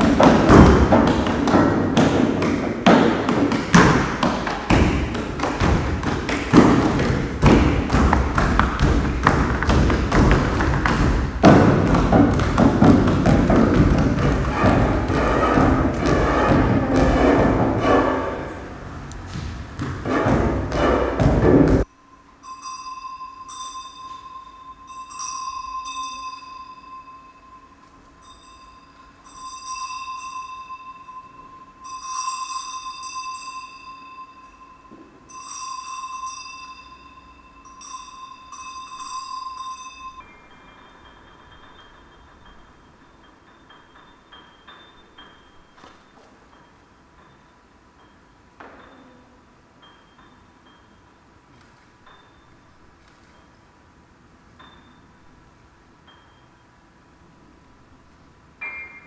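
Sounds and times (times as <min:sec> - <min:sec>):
piano strings ringing: 0:03.9 - 0:21.9, 0:58.6 - 0:59.0
sustained bell-like ringing tone: 0:21.9 - 0:51.3, 0:52.0 - 0:53.6, 0:54.6 - 0:55.4, 0:56.0 - 0:56.8, 0:58.6 - 0:59.0.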